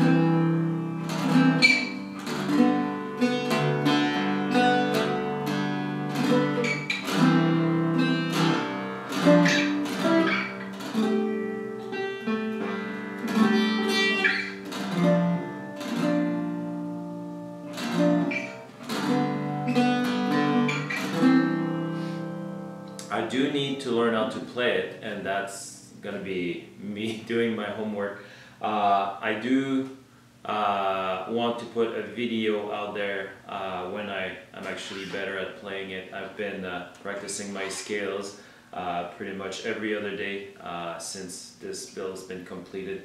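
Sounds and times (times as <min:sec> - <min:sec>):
mandocello strummed and picked: 0:00.0 - 0:25.4, 0:33.9 - 0:38.2.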